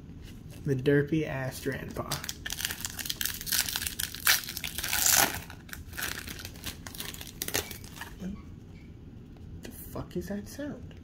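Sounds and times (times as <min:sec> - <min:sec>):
foil wrapper crumpling: 0:02.0 - 0:08.2.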